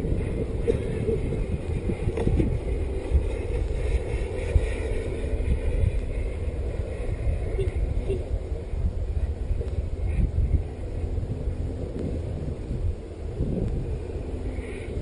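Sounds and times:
distant model jet turbine whine: 0.0 - 15.0
wind buffeting microphone: 0.0 - 15.0.

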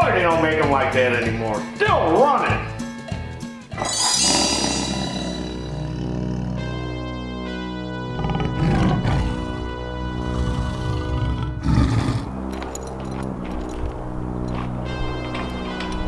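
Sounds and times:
background music: 0.0 - 16.0
big cat roar: 3.7 - 7.2, 8.1 - 9.6, 10.2 - 12.4.

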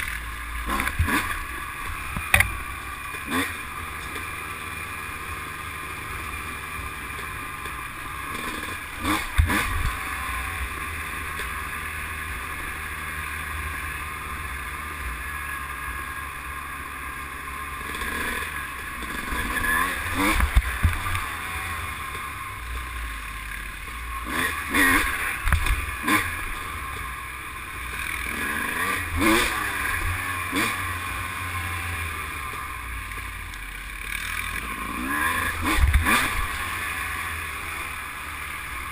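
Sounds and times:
sharp knocks over bumps: 0.0 - 3.3
atv engine running: 0.0 - 38.9.

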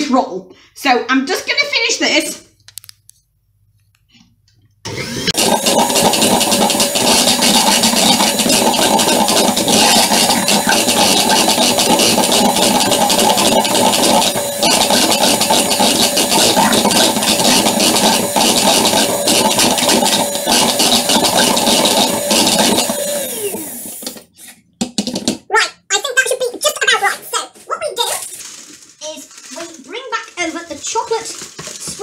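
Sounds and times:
electric hand mixer running: 4.8 - 24.3.

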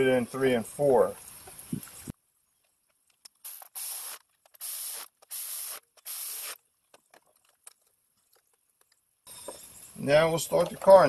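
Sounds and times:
short bursts of hissing: 3.4 - 6.6.

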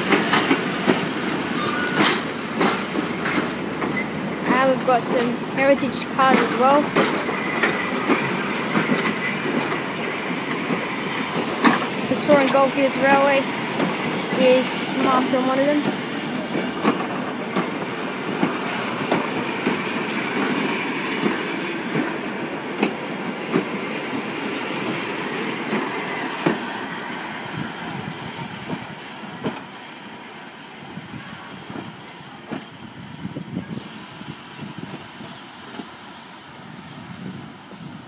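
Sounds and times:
train wheels clacking over rail joints: 0.0 - 29.7.

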